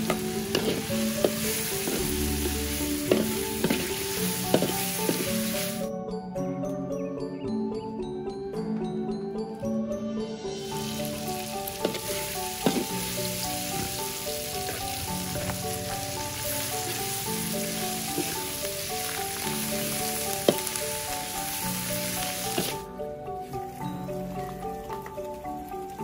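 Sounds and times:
metal spatula scraping a pan: 0:00.0 - 0:05.8
leaves sizzling in a wok: 0:00.0 - 0:05.9, 0:10.6 - 0:26.0
light background music: 0:00.0 - 0:26.0.

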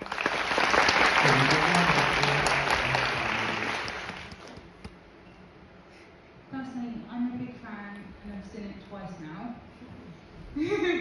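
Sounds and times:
audience applauding: 0:00.0 - 0:04.6.

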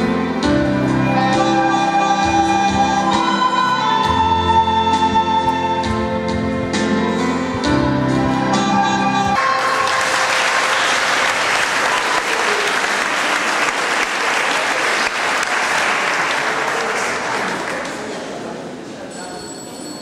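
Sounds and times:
music: 0:00.0 - 0:10.9
audience applauding: 0:09.4 - 0:18.5.

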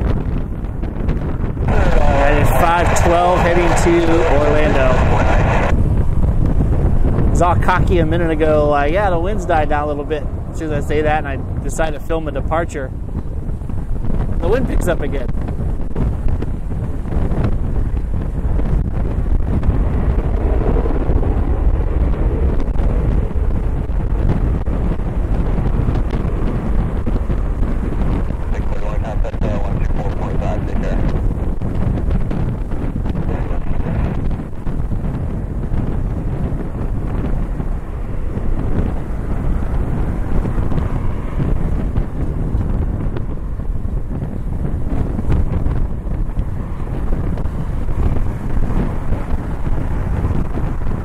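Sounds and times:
gusty wind buffeting microphone: 0:00.0 - 0:51.0.

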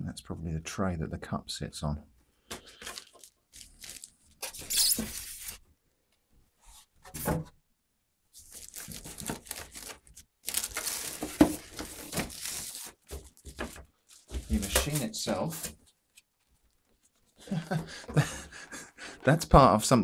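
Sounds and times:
plastic wrapping rustling: 0:02.7 - 0:05.6, 0:08.4 - 0:17.4
polystyrene scraping cardboard: 0:03.0 - 0:05.6, 0:08.4 - 0:15.8.

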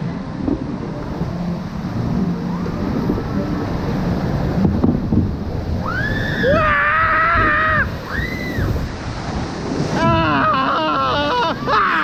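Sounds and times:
boat splashing down water channel: 0:00.0 - 0:12.0
wind buffeting microphone: 0:00.0 - 0:12.0
person screaming: 0:10.0 - 0:12.0.

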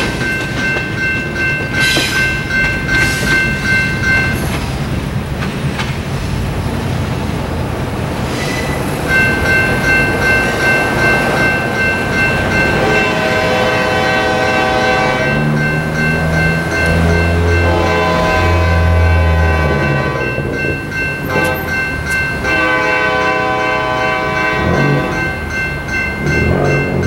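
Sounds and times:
low rumble of train: 0:00.0 - 0:27.0
locomotive air horn blasts: 0:12.6 - 0:15.5, 0:17.3 - 0:20.4, 0:21.3 - 0:21.7, 0:22.4 - 0:25.2.

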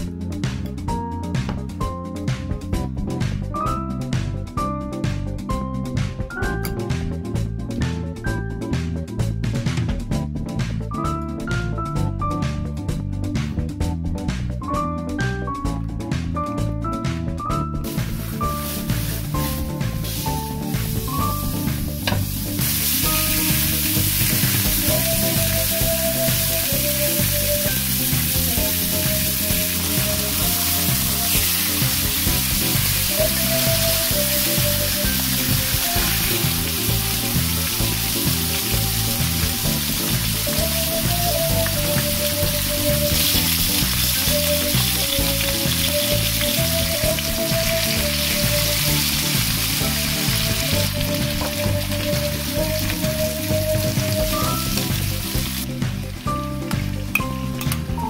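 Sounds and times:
background music with bass line: 0:00.0 - 0:58.0
meat sizzling in a pan: 0:17.8 - 0:55.8.

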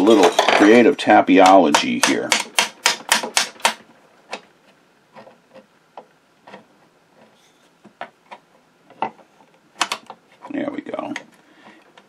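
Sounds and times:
mallet tapping metal mechanism: 0:01.4 - 0:03.8.

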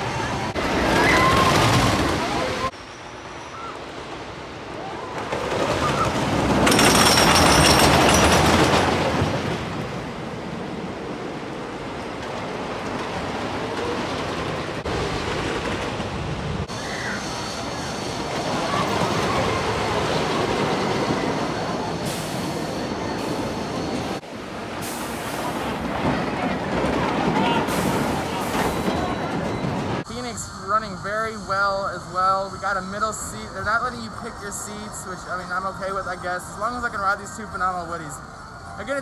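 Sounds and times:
roller coaster rumbling and clattering: 0:00.0 - 0:02.8, 0:03.5 - 0:39.0.

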